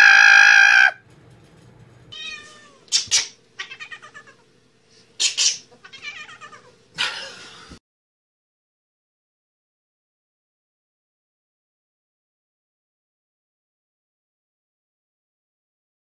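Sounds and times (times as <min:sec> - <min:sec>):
cats meowing and yowling: 0:00.0 - 0:01.0, 0:02.1 - 0:02.9, 0:03.6 - 0:04.4, 0:05.8 - 0:06.8.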